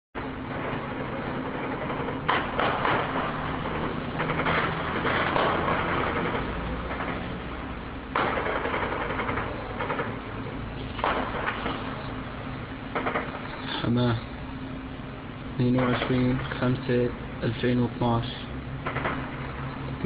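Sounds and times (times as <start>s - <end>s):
low hum: 0.2s - 20.0s
distant gunfire: 0.4s - 12.0s, 12.9s - 13.9s, 15.6s - 16.5s, 18.8s - 19.7s.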